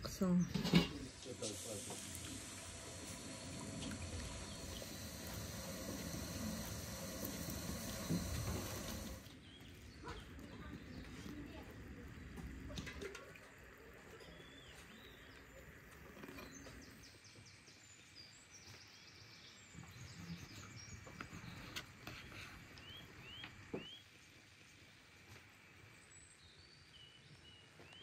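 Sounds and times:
background hiss: 0:00.6 - 0:09.2.

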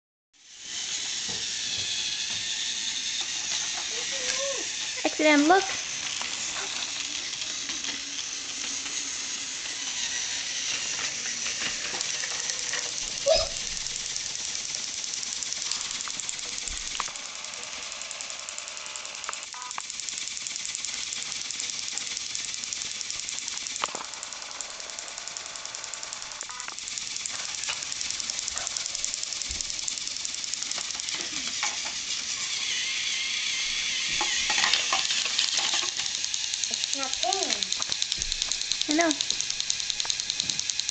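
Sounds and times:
toy train whirring on track: 0:00.4 - 0:40.9.

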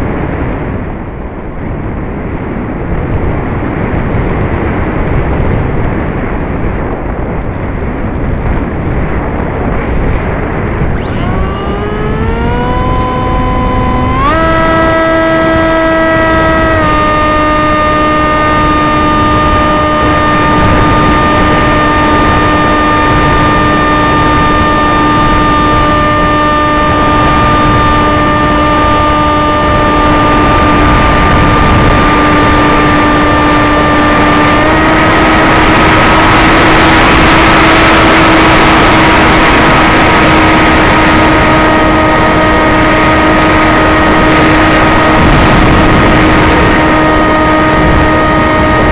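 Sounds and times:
rushing wind: 0:00.0 - 0:48.9
electric motor whine: 0:10.6 - 0:48.9.

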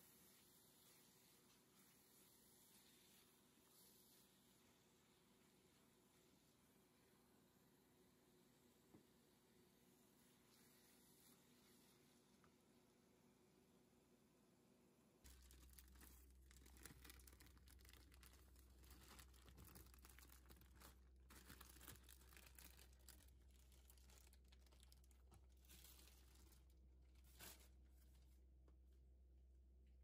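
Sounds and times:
faint crackling and rustling: 0:00.0 - 0:07.4, 0:15.2 - 0:29.0.

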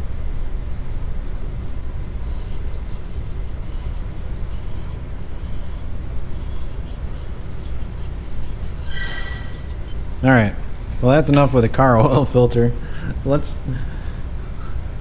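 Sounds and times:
steady low hum: 0:00.0 - 0:15.0
gloved fingers scraping metal: 0:02.0 - 0:10.2.

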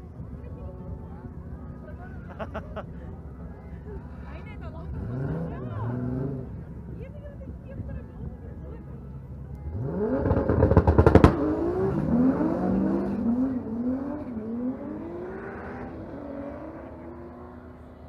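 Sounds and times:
engine up-shifts: 0:04.8 - 0:06.9, 0:09.6 - 0:18.0
drag car engine revving: 0:09.7 - 0:17.9.

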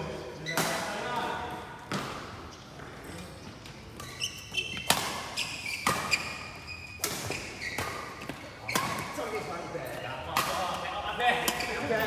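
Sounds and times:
shoes squeaking on court floor: 0:00.3 - 0:12.0
rackets striking shuttlecock: 0:03.9 - 0:06.2, 0:10.3 - 0:11.8.

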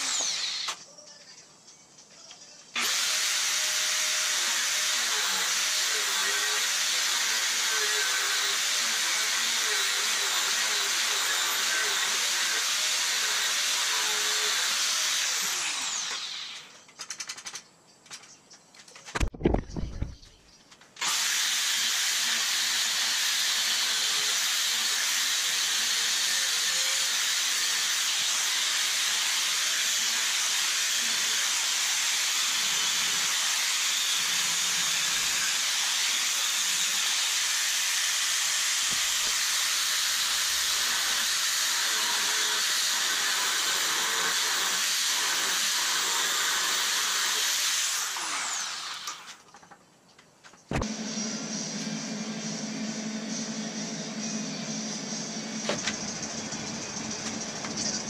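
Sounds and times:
angle grinder grinding steel: 0:00.0 - 0:00.8, 0:02.8 - 0:16.9, 0:21.0 - 0:49.5.

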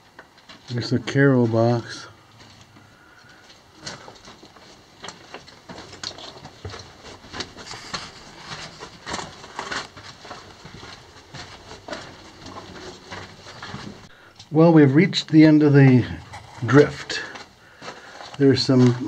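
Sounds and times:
footsteps crunching on rocks: 0:02.4 - 0:14.1, 0:16.2 - 0:19.0.

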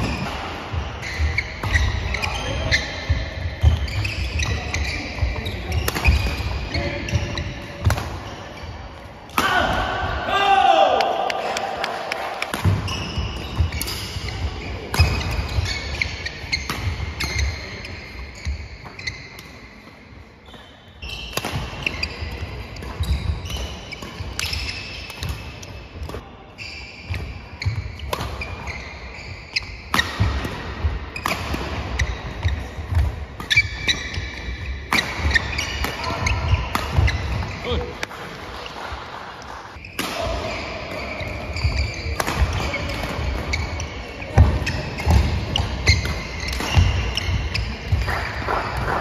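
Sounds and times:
shoes squeaking on floor: 0:00.0 - 0:09.1, 0:12.7 - 0:38.9, 0:39.7 - 0:49.0
racket striking shuttlecock: 0:05.7 - 0:06.5, 0:21.2 - 0:22.2, 0:29.6 - 0:38.2, 0:39.8 - 0:43.8, 0:44.4 - 0:49.0.

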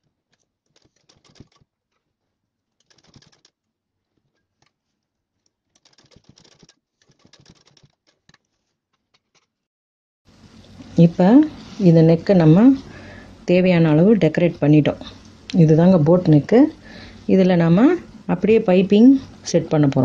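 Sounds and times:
sewing machine stitching: 0:00.7 - 0:01.7, 0:02.8 - 0:03.5, 0:05.7 - 0:08.7.

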